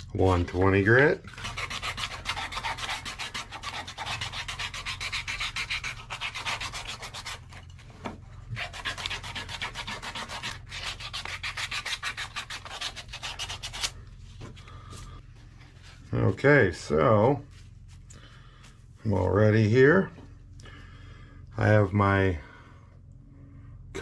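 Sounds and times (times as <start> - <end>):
sandpaper sanding wood: 1.3 - 7.6, 8.5 - 13.9.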